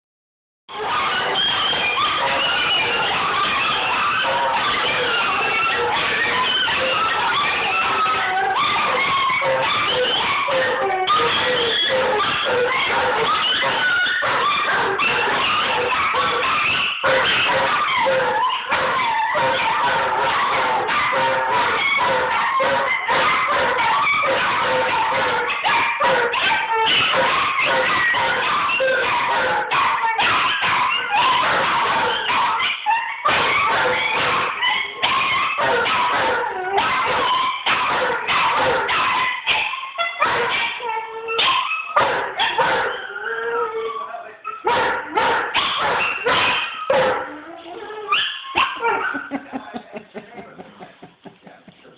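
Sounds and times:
dogs howling: 0.7s - 51.0s
dogs yipping and whimpering: 0.7s - 51.4s.

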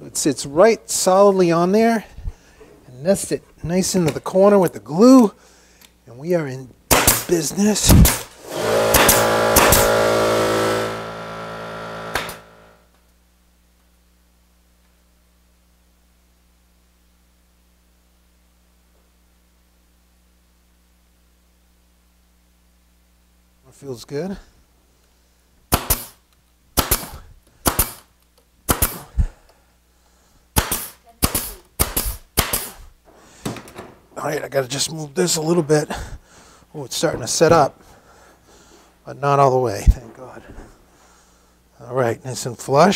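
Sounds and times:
nail gun firing: 6.9s - 12.8s, 25.7s - 26.2s, 26.8s - 28.1s, 28.7s - 29.2s, 30.6s - 32.8s
exhaust air bursts: 7.1s - 12.8s, 28.7s - 29.4s, 30.0s - 33.4s
steady motor hum: 7.8s - 13.0s.

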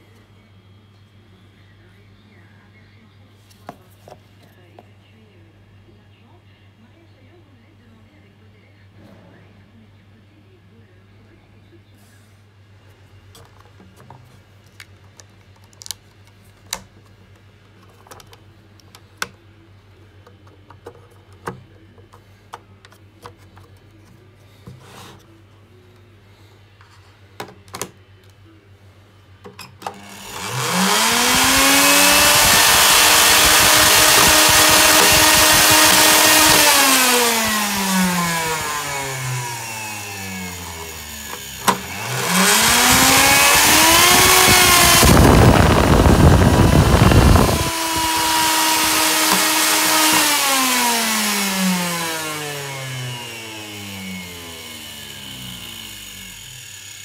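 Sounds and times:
vacuum motor whining: 29.8s - 57.0s.

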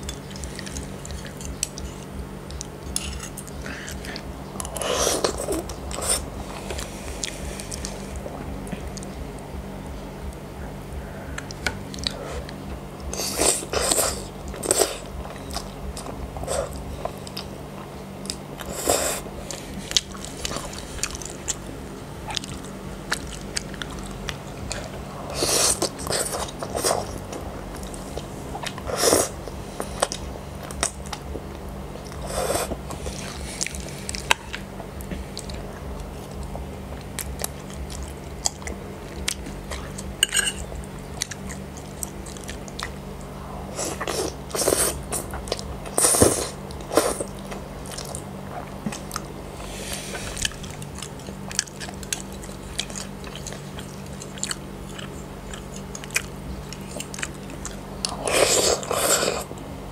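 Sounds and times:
wet chewing: 0.0s - 9.2s, 11.4s - 59.6s
faint steady hum: 0.0s - 59.9s
slurping noodles: 45.9s - 47.3s, 58.1s - 59.5s.

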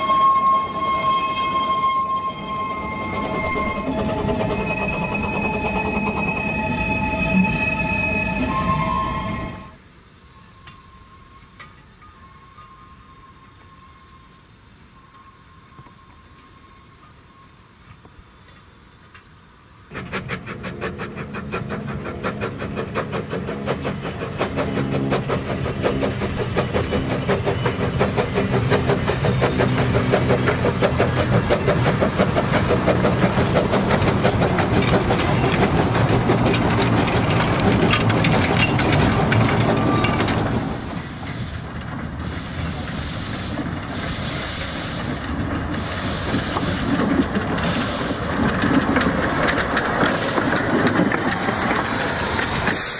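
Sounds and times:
steam locomotive exhaust chuffs: 2.6s - 8.7s, 19.9s - 52.9s
wheel clatter: 19.9s - 43.0s, 45.0s - 52.9s
steam hissing: 19.9s - 52.9s.

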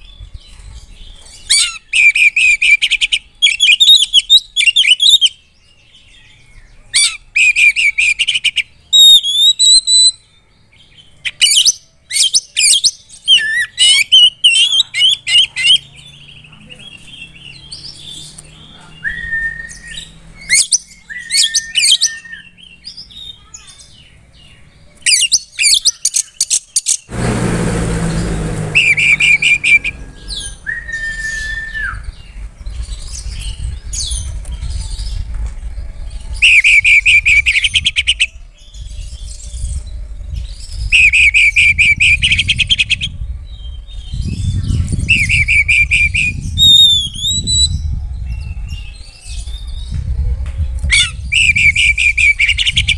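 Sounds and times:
bird singing whistles and trills: 0.0s - 27.1s, 28.7s - 52.9s
low rumble: 27.1s - 41.0s, 41.8s - 52.9s.

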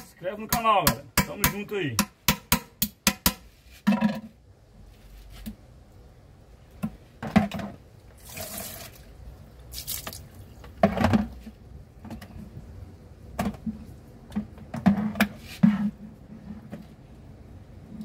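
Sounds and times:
water splashing in plastic bowl: 8.2s - 10.8s.

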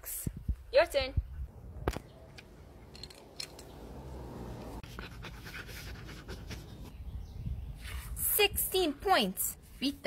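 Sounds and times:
dog panting: 4.8s - 6.9s.

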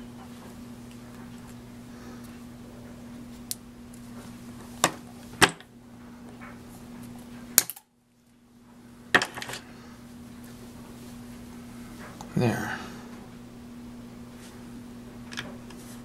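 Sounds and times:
steady low hum: 0.0s - 16.0s
pliers clicking and snapping wire: 7.6s - 7.9s.

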